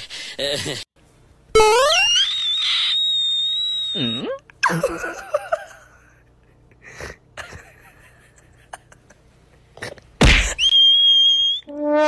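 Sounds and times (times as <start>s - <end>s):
high whistle-like tone: 1.6s - 4.4s, 10.6s - 11.8s
person giggling: 4.6s - 9.2s.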